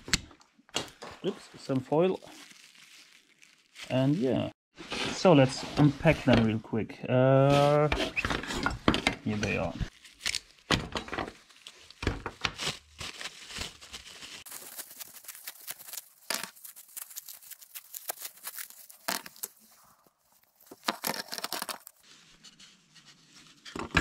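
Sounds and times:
plastic film crinkling and tearing: 0:01.3 - 0:04.4, 0:09.9 - 0:22.1.

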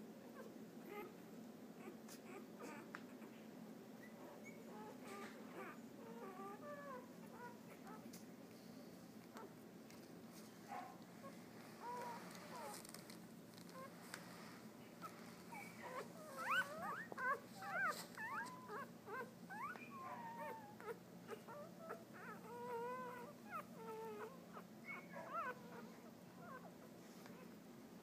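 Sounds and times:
puppies squeaking and whimpering: 0:01.8 - 0:03.3, 0:04.0 - 0:08.0, 0:11.2 - 0:13.0, 0:15.0 - 0:26.7.

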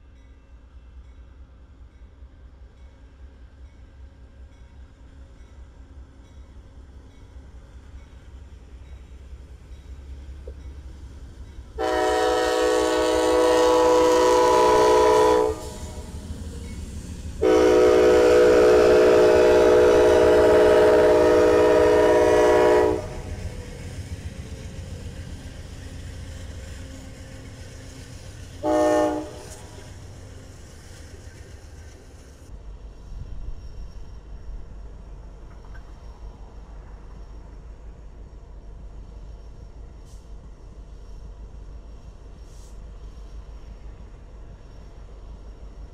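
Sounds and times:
low rumble of passing train: 0:00.0 - 0:45.9
locomotive air horn blasts: 0:11.8 - 0:16.1, 0:17.4 - 0:23.3, 0:28.6 - 0:29.8.

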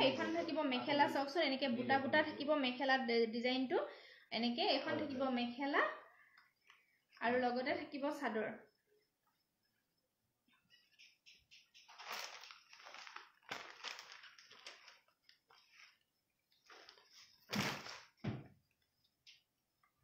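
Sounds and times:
cloth rustling and flapping: 0:11.9 - 0:18.2.

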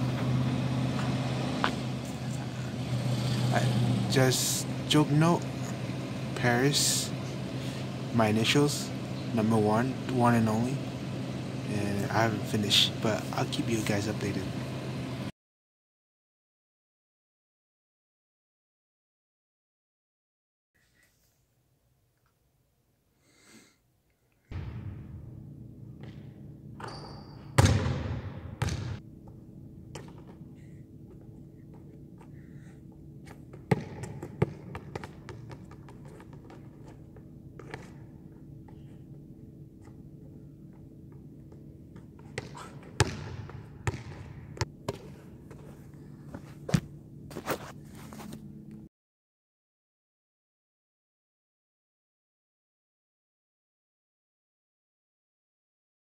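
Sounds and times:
steady hall hum: 0:00.0 - 0:15.3, 0:20.8 - 0:48.9
ball bouncing on gym floor: 0:25.9 - 0:29.0, 0:33.4 - 0:36.9, 0:42.1 - 0:45.2.

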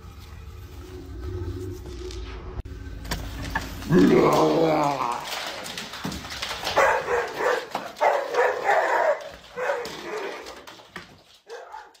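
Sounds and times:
dog barking and yipping: 0:06.7 - 0:10.6, 0:11.4 - 0:12.0.

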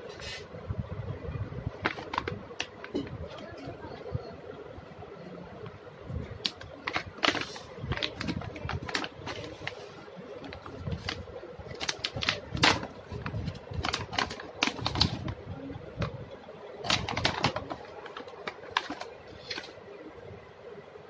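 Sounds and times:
plastic pouch crinkling: 0:01.8 - 0:03.0, 0:06.4 - 0:15.4, 0:16.8 - 0:19.8.

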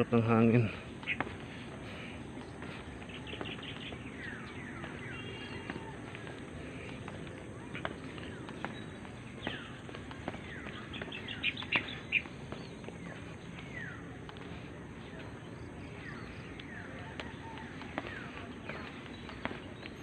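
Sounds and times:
sharp bird chirps: 0:08.3 - 0:14.0.

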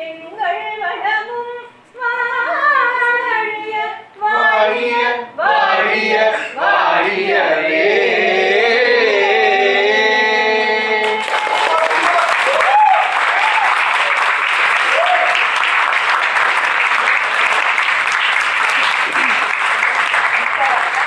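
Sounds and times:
woman singing: 0:00.0 - 0:04.6
several voices singing: 0:00.0 - 0:11.6.

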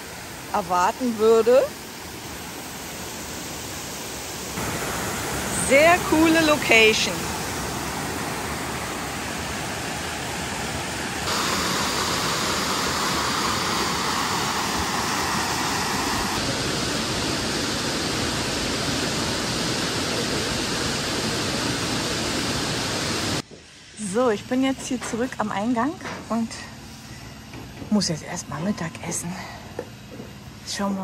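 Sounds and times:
waterfall and river rapids rushing: 0:00.0 - 0:00.6, 0:01.8 - 0:23.4.

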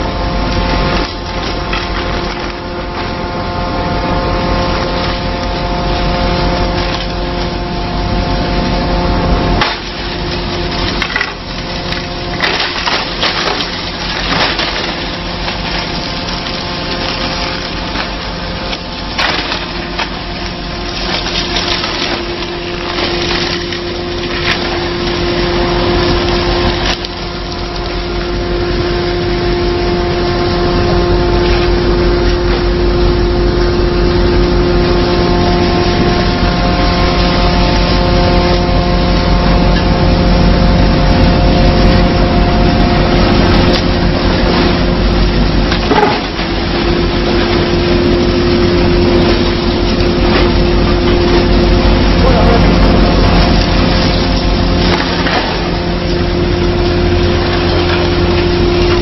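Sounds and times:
heavy low rumble: 0:00.0 - 0:59.0
wood-processing machinery hum: 0:00.0 - 0:59.0
wood cracking and snapping: 0:00.5 - 0:02.7, 0:09.6 - 0:28.3, 0:43.3 - 0:59.0.

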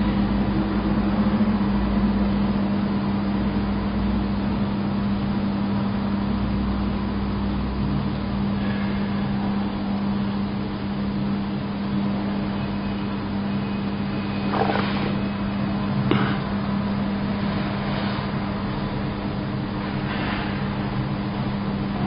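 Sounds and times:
mechanical hum with low drone: 0:00.0 - 0:22.0.

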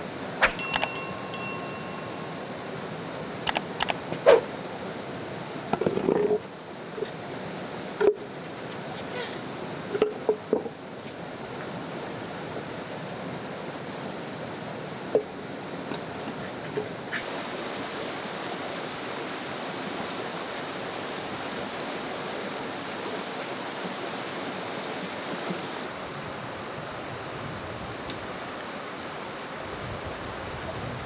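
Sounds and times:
faint clicks: 0:03.5 - 0:04.0
stream running over rocks: 0:16.9 - 0:30.7.

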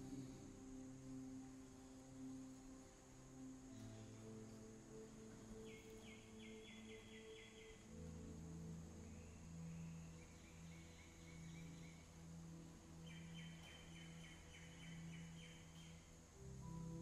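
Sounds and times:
high chirping trills: 0:03.6 - 0:16.3.

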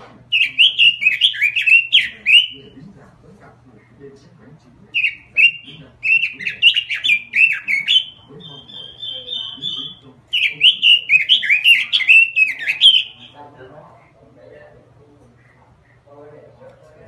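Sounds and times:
bird warbling and trilling: 0:00.3 - 0:02.8, 0:04.9 - 0:13.7.

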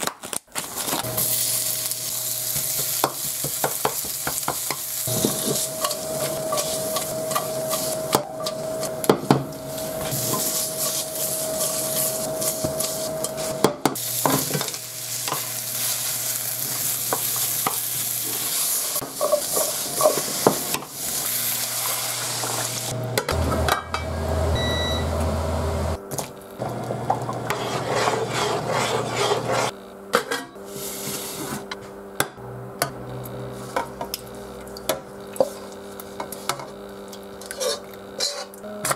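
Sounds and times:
food sizzling in frying pan: 0:00.7 - 0:23.0
wooden spatula scraping pan: 0:09.7 - 0:13.7, 0:27.3 - 0:29.7
short electronic beep: 0:24.1 - 0:25.2.

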